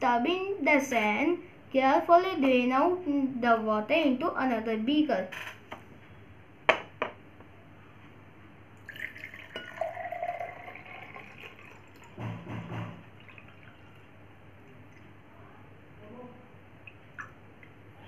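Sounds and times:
water pouring into a glass: 8.8 - 15.2.

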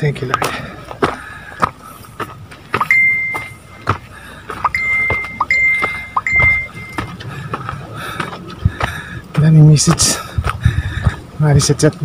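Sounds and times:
footsteps on dirt trail: 0.0 - 11.3
short high beeps: 2.8 - 4.0, 4.6 - 7.1.

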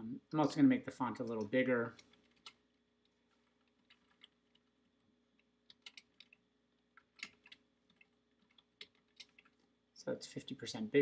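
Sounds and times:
typing on computer keyboard: 1.9 - 4.7, 5.4 - 9.6.

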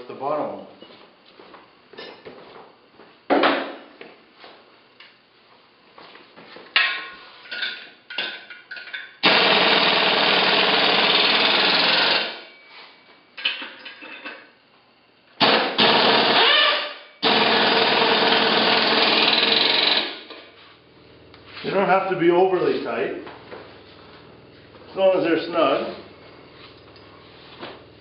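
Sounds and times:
electric impact wrench running: 9.2 - 12.5, 15.4 - 20.4.

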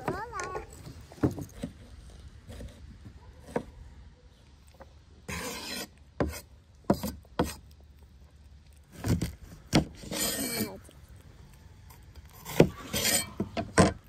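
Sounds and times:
blade scraping across wood: 0.0 - 3.8, 5.2 - 7.8, 8.8 - 11.0, 11.9 - 14.0.

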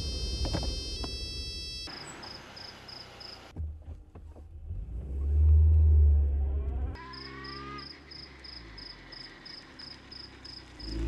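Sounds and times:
phone ringtone: 0.0 - 1.9
car engine rumble: 0.0 - 11.0.

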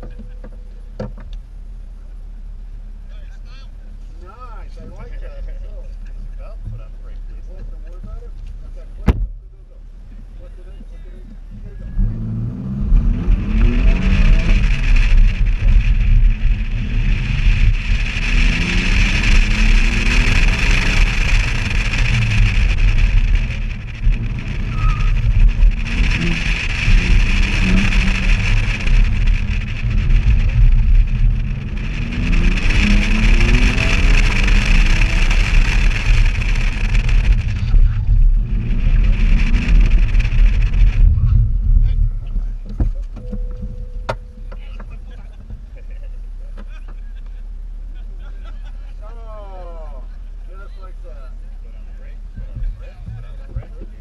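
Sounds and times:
wind rumbling on microphone: 0.0 - 47.0, 49.6 - 54.0
car engine revving: 6.0 - 46.7.

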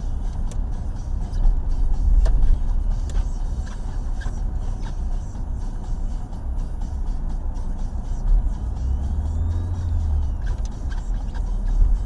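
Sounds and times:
car interior road rumble: 0.0 - 12.0.

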